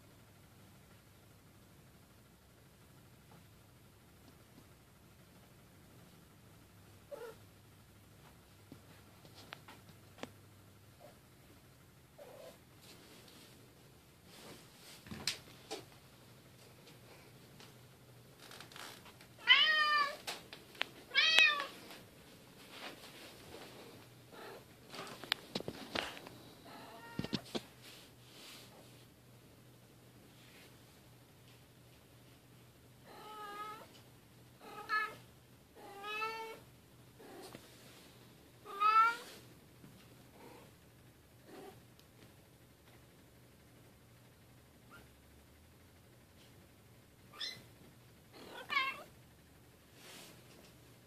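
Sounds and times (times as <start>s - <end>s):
cat meowing: 19.4s - 20.2s, 21.1s - 21.7s, 38.7s - 39.3s, 48.4s - 49.1s.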